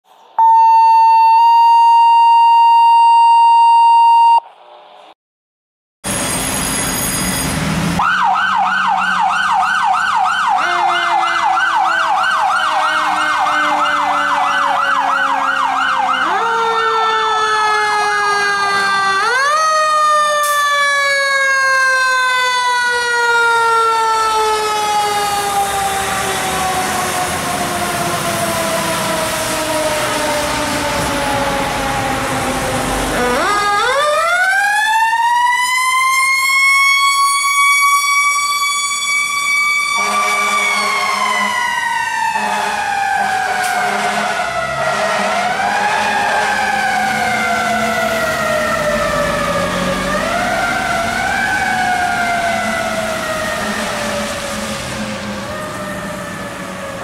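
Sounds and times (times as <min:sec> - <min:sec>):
electronic siren yelping: 0:00.3 - 0:04.5, 0:08.0 - 0:32.3, 0:33.0 - 0:54.4
mechanical siren winding down: 0:00.4 - 0:04.5, 0:06.1 - 0:57.0
horn blast: 0:39.9 - 0:41.7, 0:42.4 - 0:46.6.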